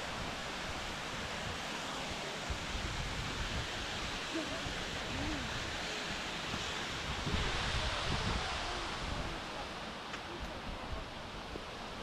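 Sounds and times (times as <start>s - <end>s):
wind hissing: 0.0s - 9.9s
wind buffeting microphone: 6.5s - 9.5s.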